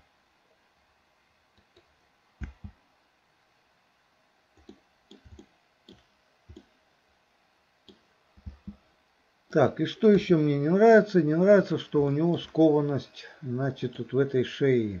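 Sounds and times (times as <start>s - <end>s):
computer mouse clicks: 1.6s - 2.8s, 4.6s - 6.7s, 7.8s - 8.8s
keyboard key presses: 1.6s - 2.8s, 7.9s - 8.8s.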